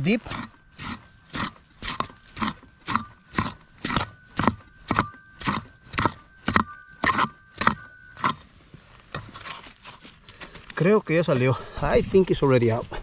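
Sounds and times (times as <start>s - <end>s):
shovel digging into ground: 0.0s - 10.2s.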